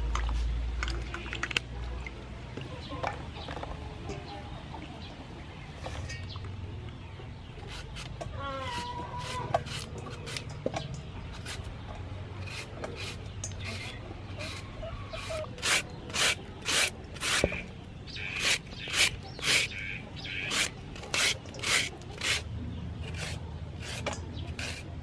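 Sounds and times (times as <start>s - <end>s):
hen clucking: 7.6s - 10.5s, 12.4s - 22.4s
mango scraping on shredder: 7.7s - 10.5s, 11.3s - 11.7s, 12.4s - 17.7s, 18.3s - 19.8s, 20.4s - 25.0s.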